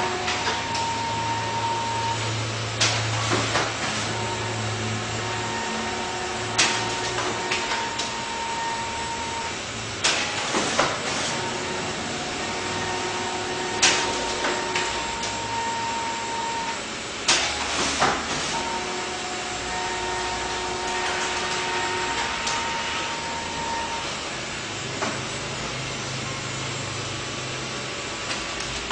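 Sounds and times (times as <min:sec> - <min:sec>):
printer whirring: 0:00.0 - 0:28.9
printer mechanism clacks: 0:02.8 - 0:04.4, 0:06.4 - 0:08.4, 0:10.0 - 0:15.8, 0:16.6 - 0:19.0.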